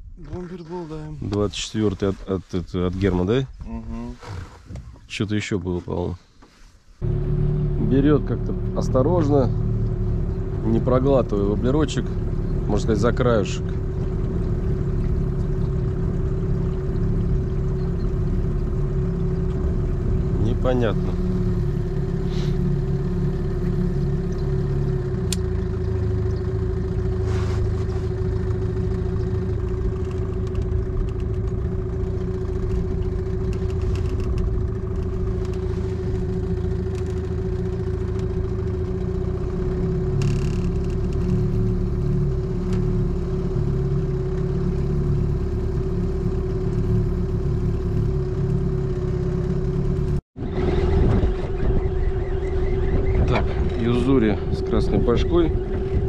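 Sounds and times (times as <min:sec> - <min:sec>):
outboard motor running: 0:00.0 - 0:56.0.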